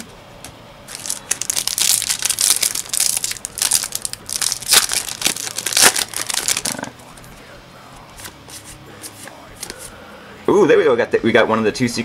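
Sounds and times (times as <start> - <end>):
foil wrapper crinkling and tearing: 0.9 - 6.9.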